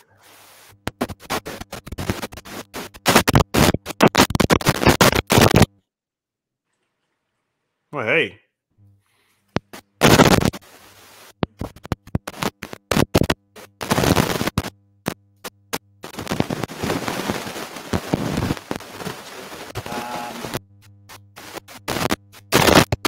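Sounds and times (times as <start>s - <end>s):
garbled glitching voice: 19.8s - 20.6s.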